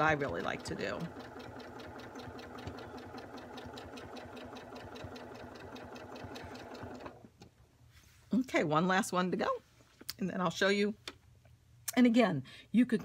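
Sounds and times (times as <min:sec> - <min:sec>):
sewing machine stitching: 0:00.0 - 0:07.2.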